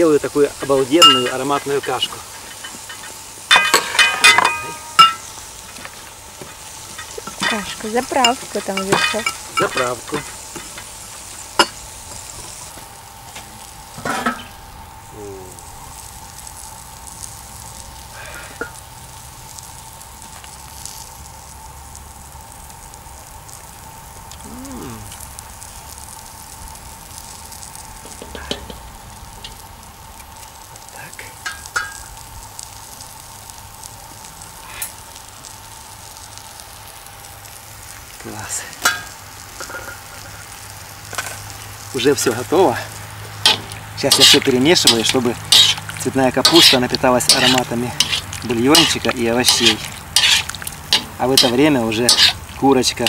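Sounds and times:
food sizzling over wood fire: 0:00.0 - 0:53.0
thin steady tone: 0:00.9 - 0:01.6
utensil knocking cauldron: 0:01.0 - 0:01.5, 0:43.5 - 0:52.6
pestle in metal mortar: 0:43.5 - 0:52.4.

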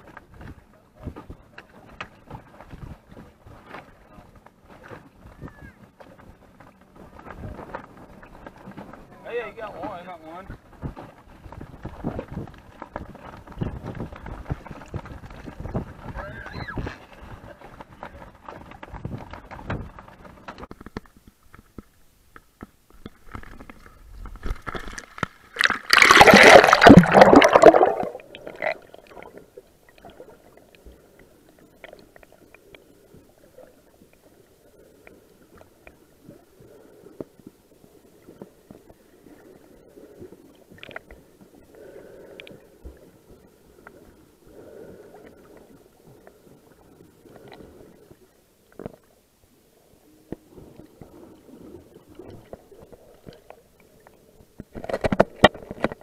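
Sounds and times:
small underwater clicks: 0:10.8 - 0:49.2, 0:50.3 - 0:56.0
loud splash into water: 0:25.6 - 0:28.8
muffled underwater hush: 0:25.6 - 0:55.4.

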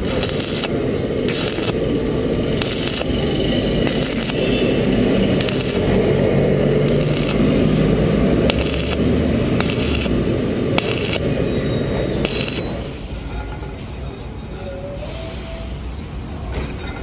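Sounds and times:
welding arc crackling sizzle: 0:00.0 - 0:13.2.

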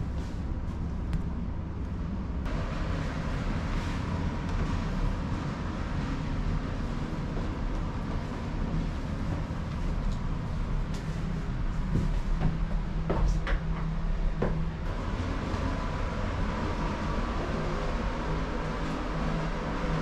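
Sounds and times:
ferry engine drone: 0:00.0 - 0:20.0.

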